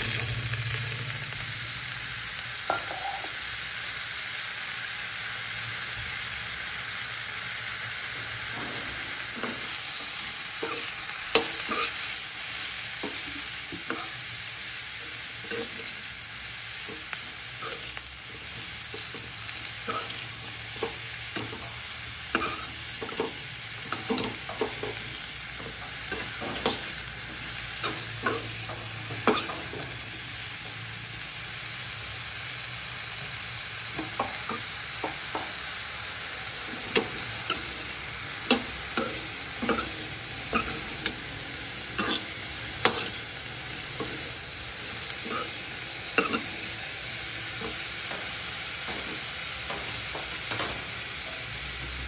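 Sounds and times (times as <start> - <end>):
broccoli sizzling in a pan: 0.0 - 52.0
steel spatula scraping a pan: 8.8 - 12.1, 36.7 - 41.3, 41.9 - 43.3, 44.0 - 46.7.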